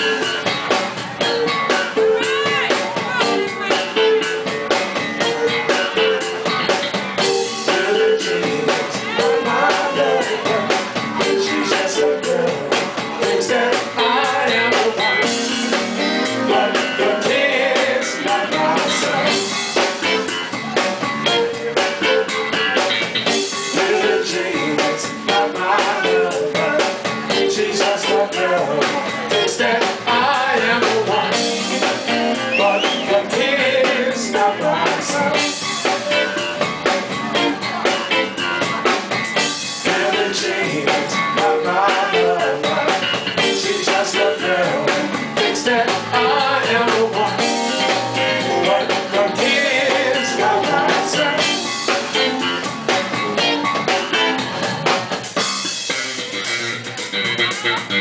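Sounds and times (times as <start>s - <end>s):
drum kit: 0.0s - 58.0s
electric bass: 0.0s - 58.0s
electric guitar: 0.0s - 58.0s
person singing: 5.2s - 20.3s, 23.6s - 36.5s, 39.7s - 52.3s.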